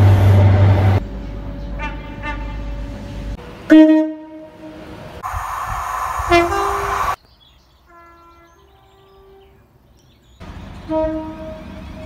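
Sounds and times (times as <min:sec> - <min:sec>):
train running noise: 0:00.0 - 0:07.2
train horn two-tone blasts: 0:01.8 - 0:02.8, 0:03.7 - 0:04.7, 0:07.9 - 0:09.6, 0:10.8 - 0:12.0.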